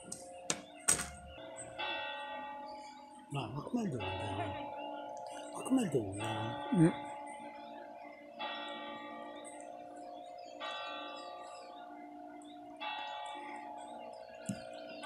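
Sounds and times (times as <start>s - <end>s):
church bell tolling: 1.3s - 7.5s, 8.4s - 9.5s.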